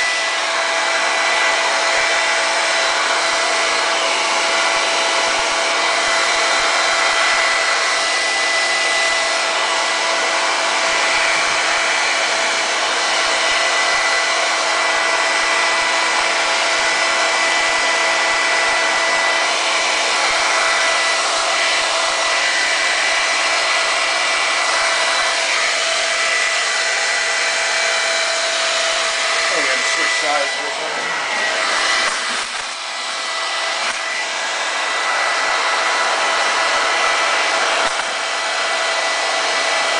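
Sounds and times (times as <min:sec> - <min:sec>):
hair dryer blowing: 0:00.0 - 0:39.9.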